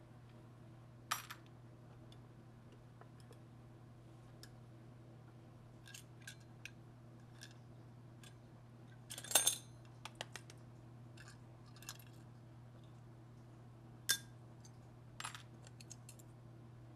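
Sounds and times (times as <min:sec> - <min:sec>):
steady low hum: 0:00.0 - 0:16.9
small metal parts clinking: 0:09.1 - 0:09.7.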